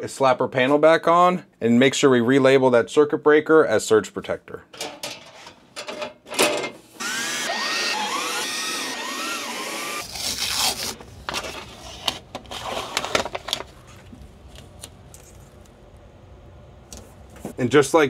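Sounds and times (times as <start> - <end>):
cordless drill driving screws: 7.0 - 10.1.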